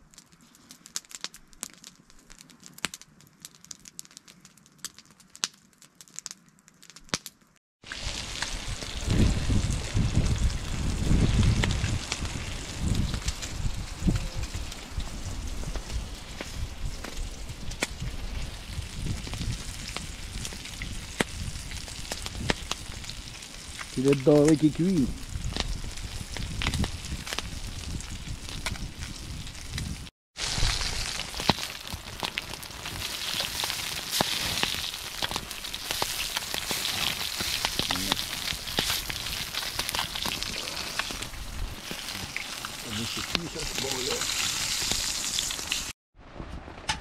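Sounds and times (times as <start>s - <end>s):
campfire crackling and popping: 0.0s - 46.0s
fish sizzling in a frying pan: 7.8s - 46.0s.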